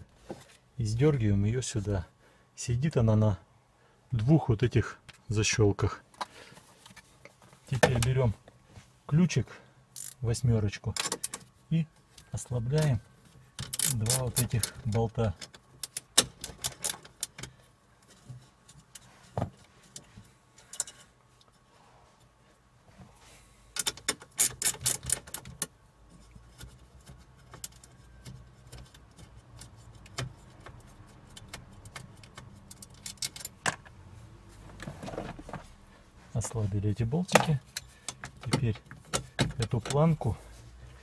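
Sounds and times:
wrench clicking on bolts: 10.0s - 10.2s, 13.6s - 17.5s, 23.8s - 25.7s.

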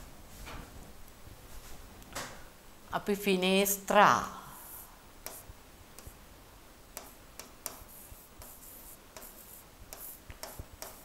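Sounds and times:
low hiss: 0.0s - 11.0s
stylus scratching on pen tablet: 7.0s - 11.0s.

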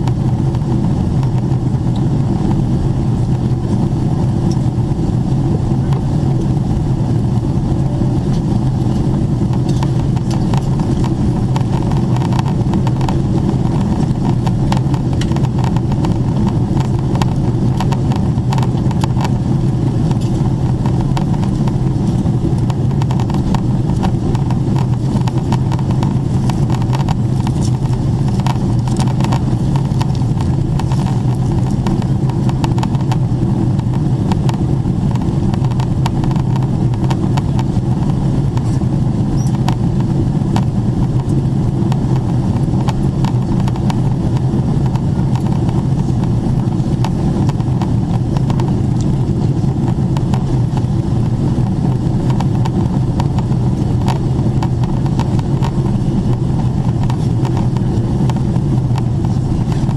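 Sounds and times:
airplane cabin roar: 0.0s - 59.9s.

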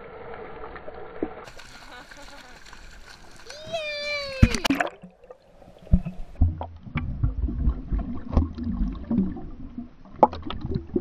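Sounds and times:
muffled underwater water rumble: 0.0s - 11.0s
underwater knocks and clicks: 5.8s - 9.5s, 10.1s - 11.0s.

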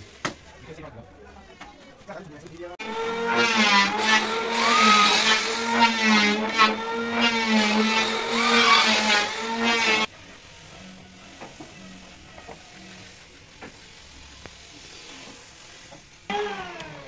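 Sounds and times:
electric drill boring into wood: 2.8s - 10.1s, 16.3s - 17.0s.

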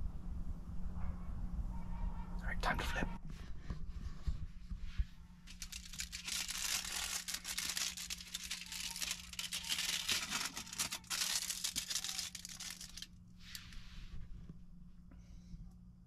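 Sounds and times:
steady low hum: 0.0s - 16.0s
aluminium foil crinkling: 5.4s - 13.8s.

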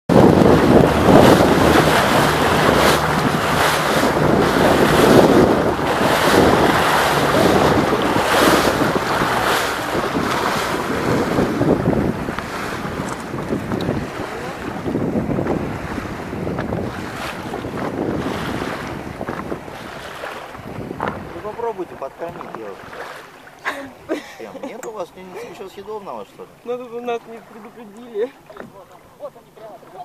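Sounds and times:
wind buffeting microphone: 0.1s - 24.2s
water splashing against boat hull: 0.1s - 30.0s.

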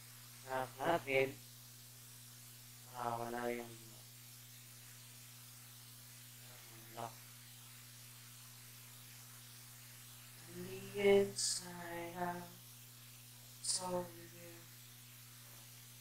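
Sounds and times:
low steady hum: 0.0s - 16.0s
man's voice: 0.5s - 1.4s, 2.9s - 3.8s.

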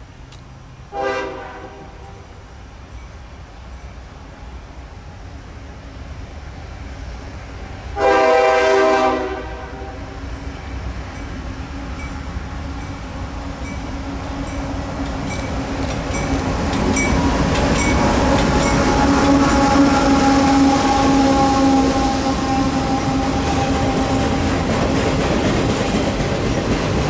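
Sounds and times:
diesel locomotive engines droning: 0.0s - 27.0s
locomotive horn chord: 0.9s - 2.2s, 8.0s - 10.2s, 18.6s - 24.4s.

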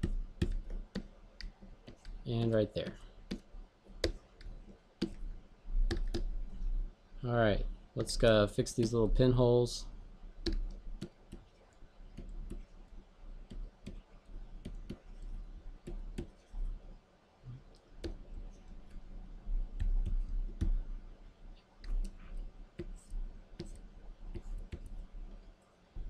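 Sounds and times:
pen stylus clicks and taps: 0.0s - 2.2s, 10.4s - 11.4s, 14.6s - 15.0s, 22.8s - 24.9s
faint low hum: 0.0s - 26.0s.

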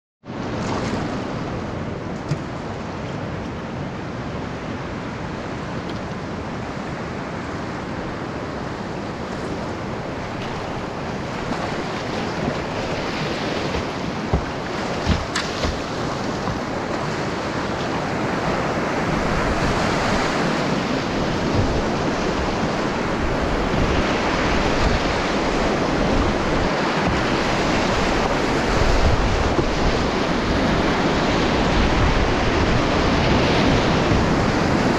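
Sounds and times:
rushing river water: 0.3s - 34.9s
short sharp knocks: 13.7s - 16.7s.

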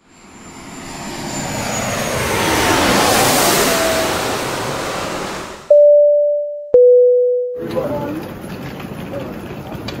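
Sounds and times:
jet aircraft roar: 0.0s - 5.7s
jet engine whine: 0.0s - 5.8s.

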